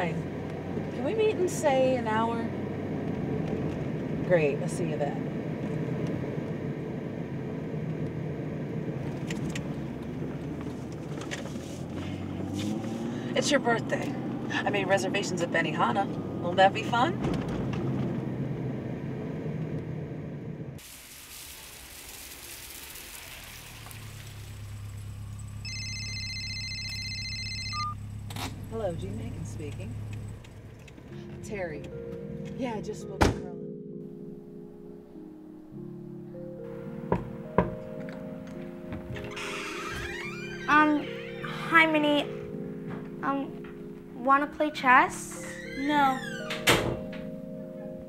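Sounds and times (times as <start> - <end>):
engine and road hum: 0.0 - 48.0
street hiss: 20.8 - 25.6
electronic two-tone phone ring: 25.6 - 28.0
light ticks: 29.7 - 31.0.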